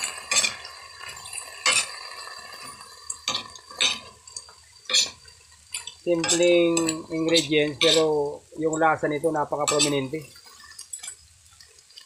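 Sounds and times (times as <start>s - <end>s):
metal spatula scraping a wok: 0.0s - 4.1s, 4.9s - 8.2s, 9.6s - 10.2s.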